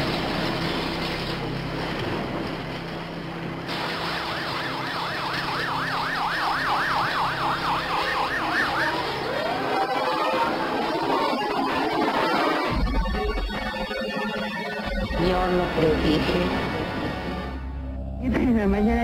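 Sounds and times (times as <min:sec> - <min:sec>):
emergency siren wailing: 0:03.7 - 0:15.8.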